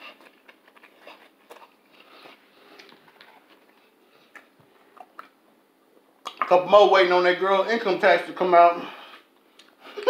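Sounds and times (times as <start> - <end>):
person chewing food: 0.0 - 6.4
wet mouth clicks and smacks: 6.2 - 6.5.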